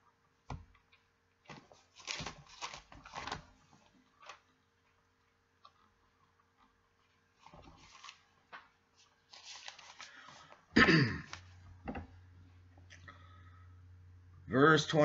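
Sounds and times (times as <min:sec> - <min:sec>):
book pages turning: 0:01.4 - 0:04.5, 0:06.6 - 0:10.7.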